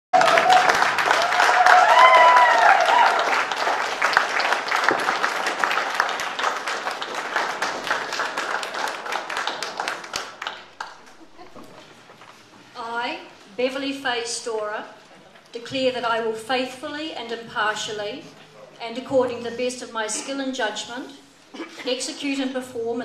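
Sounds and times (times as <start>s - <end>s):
roomful of people applauding: 0.1s - 12.4s.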